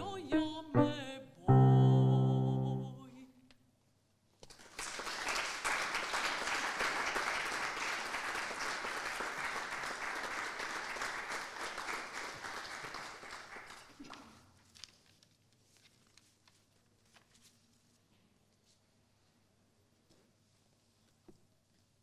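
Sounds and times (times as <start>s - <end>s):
audience applauding: 4.5s - 14.4s.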